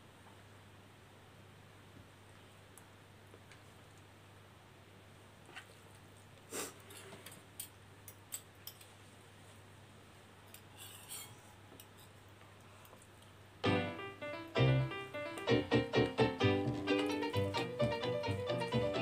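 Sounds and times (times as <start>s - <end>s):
forks and spoons against plastic bowls: 10.5s - 12.1s
piano music: 13.6s - 19.0s.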